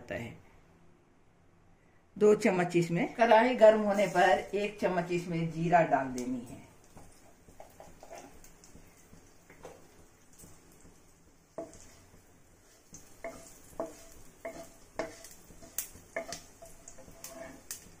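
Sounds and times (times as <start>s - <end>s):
seeds sizzling in oil: 3.3s - 18.0s
wooden spatula scraping pan: 3.6s - 4.8s, 6.9s - 18.0s.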